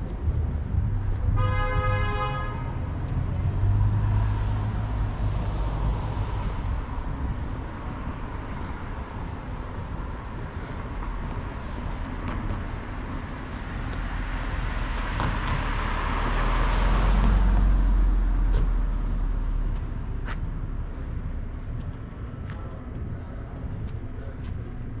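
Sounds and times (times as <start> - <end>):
car passing by: 2.7 - 10.0, 10.7 - 21.4.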